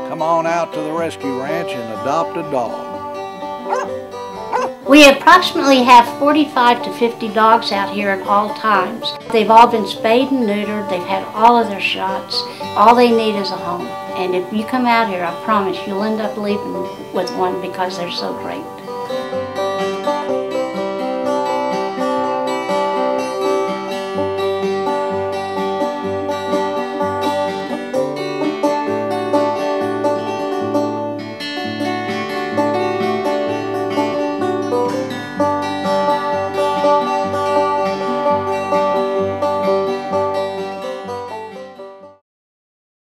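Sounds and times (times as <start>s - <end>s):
plucked strings music: 0.0s - 42.2s.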